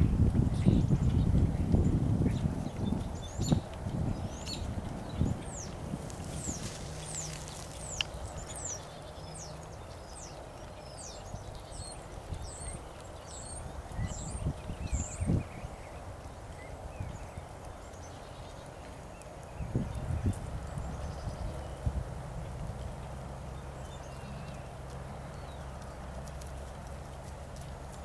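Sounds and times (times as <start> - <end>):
birds chirping: 0.0 - 28.0
horse hooves trotting on grass: 0.0 - 28.0.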